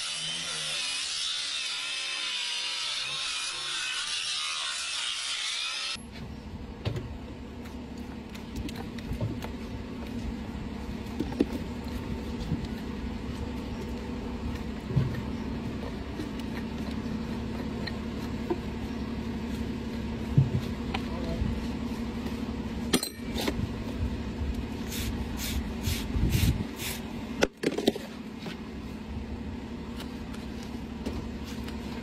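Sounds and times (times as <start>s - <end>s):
low mechanical hum: 0.0s - 32.0s
metal knocks and clinks: 22.9s - 23.4s.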